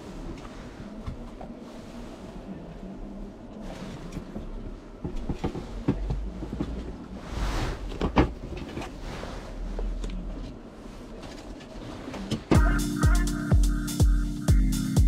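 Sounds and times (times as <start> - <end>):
padded coat rubbing: 7.2 - 7.9, 8.9 - 9.9.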